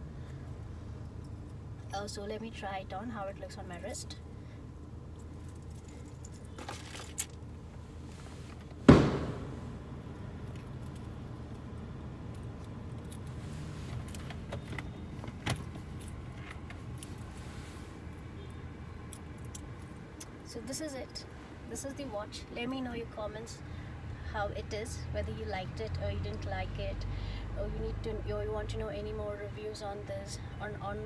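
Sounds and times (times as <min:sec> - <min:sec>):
steady low hum: 0:00.0 - 0:14.3
loud thump: 0:08.9 - 0:10.0.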